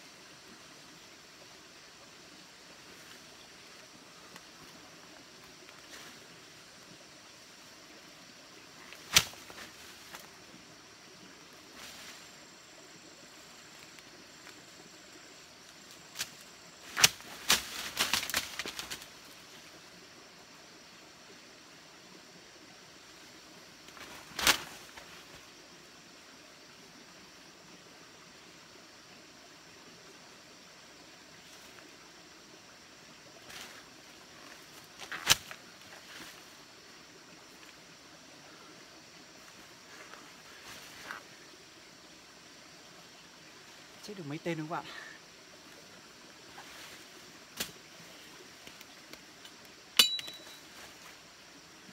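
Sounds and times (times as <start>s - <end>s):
leaves and brush rustling: 0.0s - 20.1s, 22.8s - 26.4s, 31.0s - 51.9s
branches striking: 8.9s - 10.3s, 16.1s - 19.1s, 23.9s - 25.1s, 35.0s - 35.6s, 47.5s - 47.8s, 50.0s - 50.8s
branches swishing: 8.9s - 10.3s, 16.1s - 19.1s, 23.9s - 25.1s
sharp crack: 9.0s - 9.6s, 35.1s - 35.6s.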